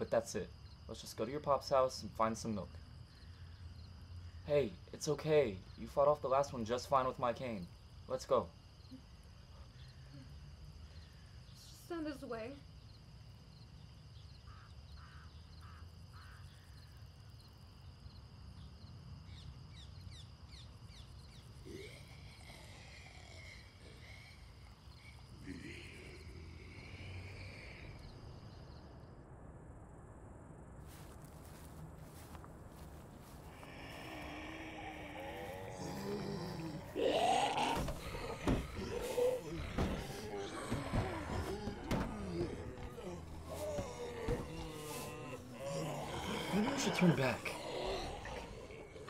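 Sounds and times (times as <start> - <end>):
high insect drone: 0.0 - 29.3, 30.8 - 49.0
people groaning and moaning: 21.6 - 28.1, 33.2 - 49.0.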